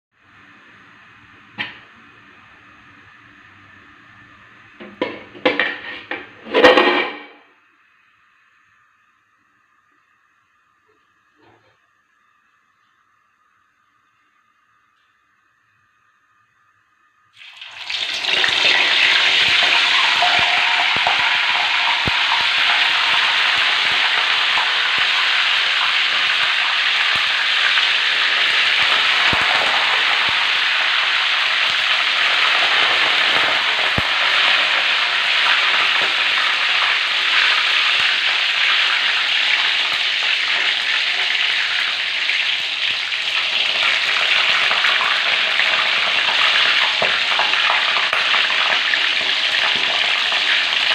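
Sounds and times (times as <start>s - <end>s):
food deep-frying in oil sizzling: 17.3s - 50.9s.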